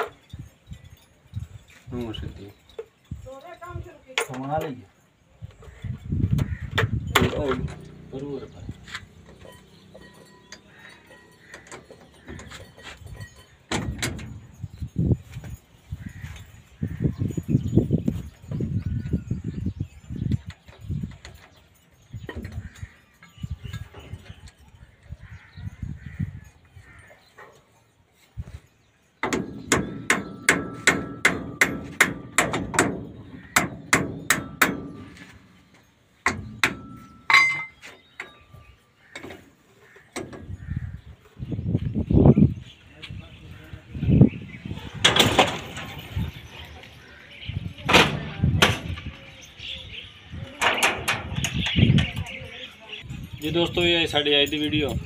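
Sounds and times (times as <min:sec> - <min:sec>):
metallic clinks of tools: 0:00.0 - 0:06.1, 0:07.0 - 0:25.2, 0:34.0 - 0:39.4
dull metal knocks: 0:05.7 - 0:08.0, 0:08.7 - 0:14.6, 0:29.2 - 0:40.9
hammer striking chisel on metal: 0:29.2 - 0:35.3, 0:36.2 - 0:38.3.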